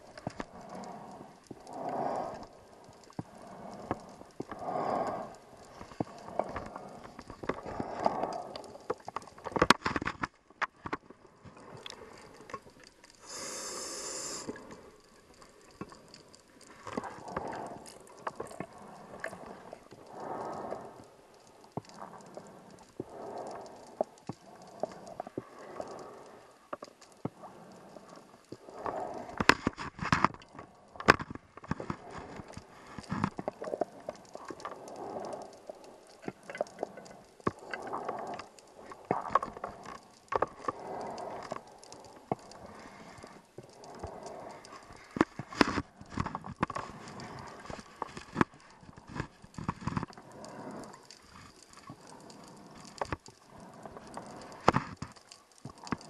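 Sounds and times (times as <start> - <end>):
diver breathing through regulator: 3.2 - 8.8, 13.2 - 15.0, 18.7 - 21.1.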